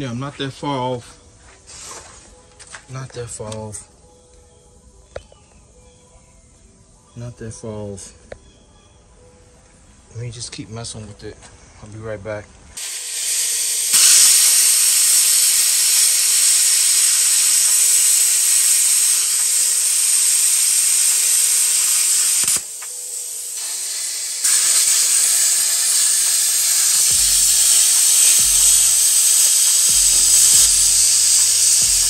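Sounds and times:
plasma cutter hissing: 0:12.8 - 0:32.0.

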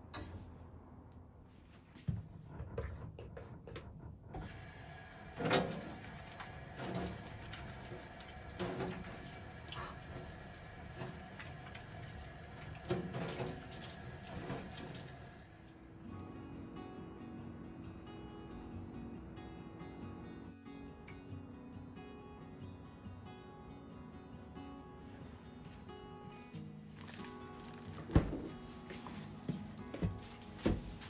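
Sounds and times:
tap water running into steel sink: 0:04.4 - 0:15.8.

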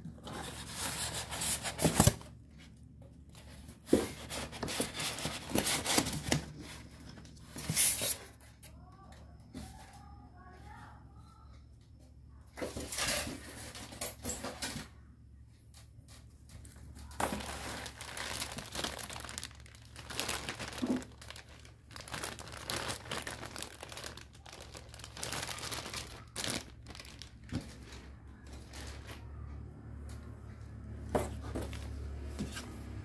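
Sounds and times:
plastic bag crinkling: 0:17.0 - 0:29.2.

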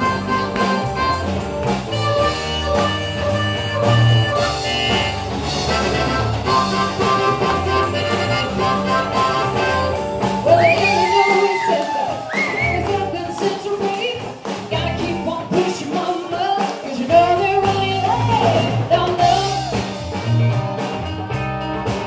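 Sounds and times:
rock band playing: 0:00.0 - 0:22.0
woman singing: 0:10.4 - 0:19.9.

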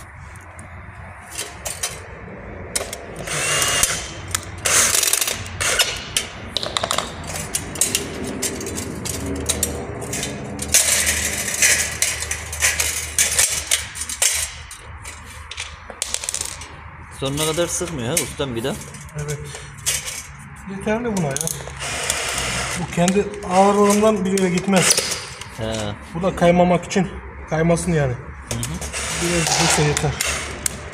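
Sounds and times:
metal track clicking and rattling: 0:01.3 - 0:02.1, 0:02.7 - 0:20.3, 0:28.5 - 0:30.9
cordless drill driving screws: 0:03.2 - 0:06.0, 0:21.8 - 0:22.9, 0:28.9 - 0:30.5.

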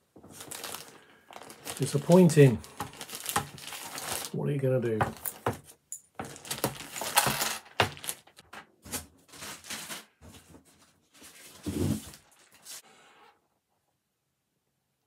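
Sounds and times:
plastic cases clicking and clacking: 0:05.0 - 0:08.6.

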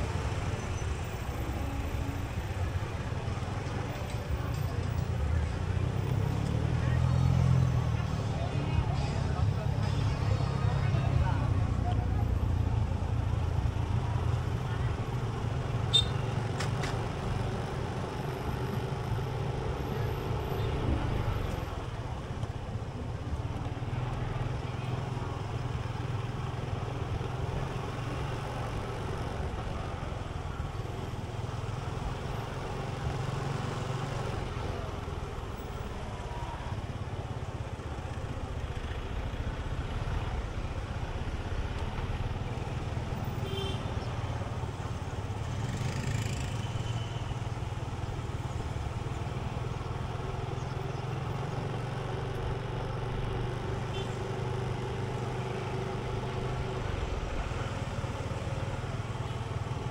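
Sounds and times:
engine hum: 0:00.0 - 0:59.9
road noise: 0:00.0 - 0:59.9.

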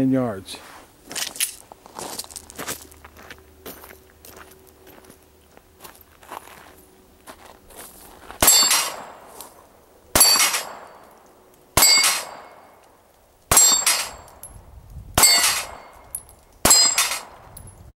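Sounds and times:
steel plate clanging: 0:08.4 - 0:09.3, 0:10.2 - 0:11.1, 0:11.8 - 0:12.8, 0:13.5 - 0:14.5, 0:15.2 - 0:17.4
pistol shots: 0:08.4 - 0:09.4, 0:10.1 - 0:11.2, 0:11.8 - 0:12.8, 0:13.5 - 0:14.5, 0:15.2 - 0:17.5.

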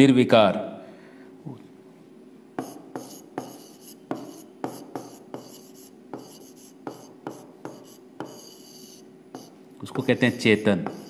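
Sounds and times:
pen tapping on display board: 0:02.6 - 0:08.5
pen scratching strokes: 0:02.6 - 0:11.0.

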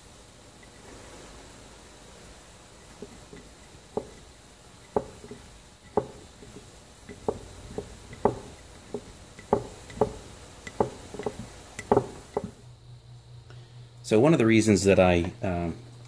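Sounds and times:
metal threads clicking and creaking: 0:02.8 - 0:12.6.

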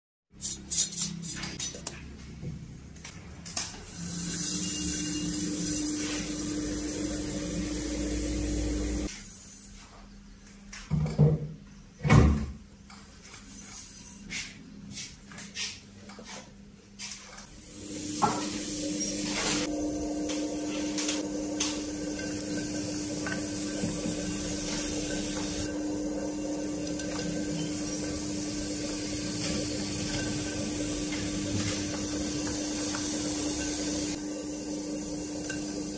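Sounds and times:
pottery wheel motor humming: 0:03.9 - 0:09.1, 0:17.5 - 0:35.9.

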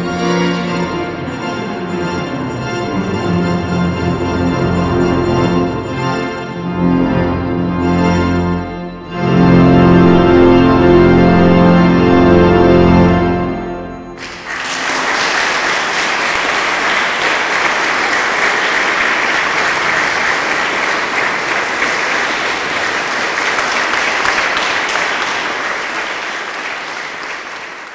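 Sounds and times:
pipe organ chord: 0:00.0 - 0:27.8
audience applause: 0:14.2 - 0:27.9.

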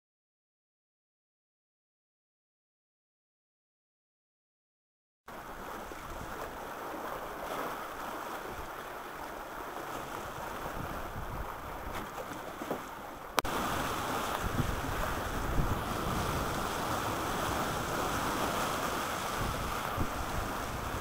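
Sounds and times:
water rushing past boat hull: 0:05.3 - 0:21.0
wind on microphone: 0:10.0 - 0:12.3, 0:13.4 - 0:21.0.

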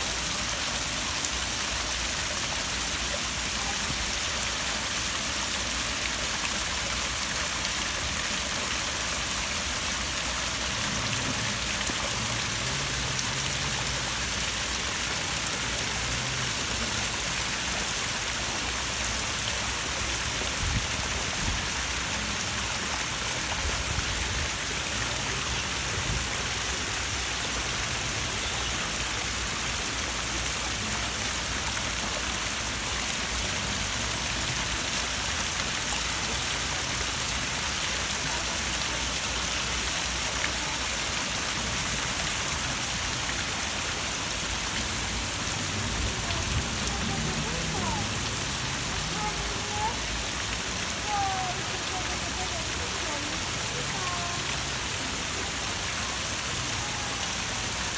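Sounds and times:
waterfall splashing into pool: 0:00.0 - 0:57.9.

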